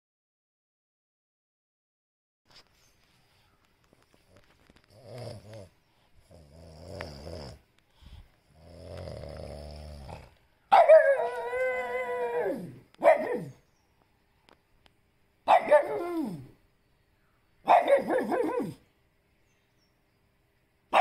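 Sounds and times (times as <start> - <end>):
dog grumbling: 4.8 - 7.7, 8.5 - 10.4
dog howling: 10.7 - 13.5, 15.6 - 16.6.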